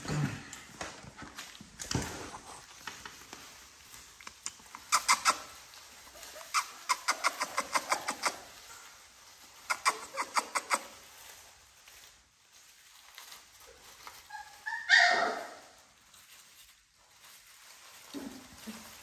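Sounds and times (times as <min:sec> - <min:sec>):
puppies squeaking and yelping: 0:04.1 - 0:11.4, 0:13.1 - 0:16.5.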